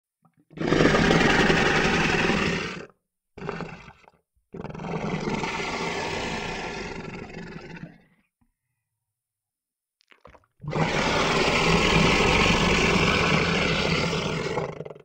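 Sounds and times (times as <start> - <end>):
monster roar: 0.6 - 2.9, 4.6 - 7.9, 10.7 - 15.0.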